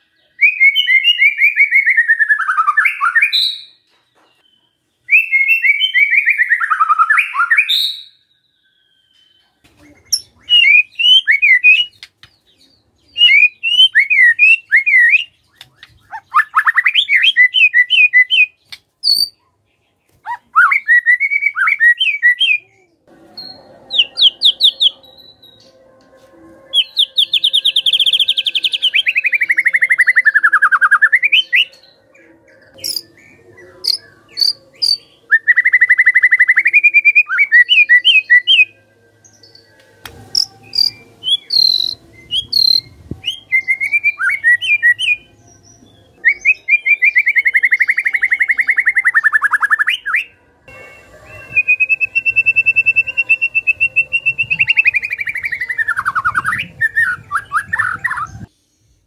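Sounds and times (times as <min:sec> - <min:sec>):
bird singing trilled phrases: 0:00.0 - 0:25.7, 0:26.8 - 0:39.7, 0:40.3 - 0:50.3, 0:51.7 - 0:59.0
sharp high bird chips: 0:40.3 - 0:42.9.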